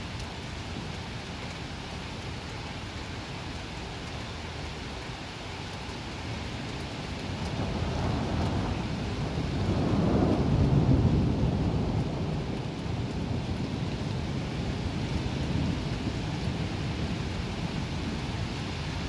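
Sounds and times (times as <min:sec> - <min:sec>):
heavy rain: 0:00.0 - 0:19.0
rolling thunder: 0:07.5 - 0:18.2.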